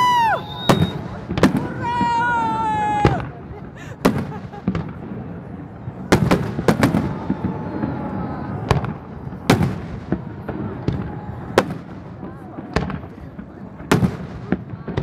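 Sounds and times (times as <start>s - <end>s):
fireworks bursting: 0.0s - 15.0s.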